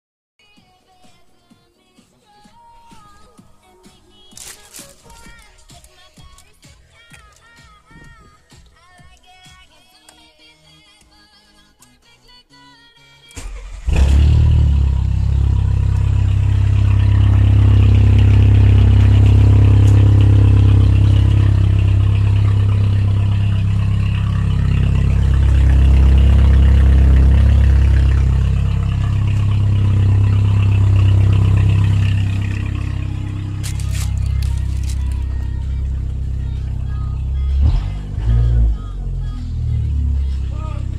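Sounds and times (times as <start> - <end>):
deep car exhaust rumble: 13.8 - 40.9.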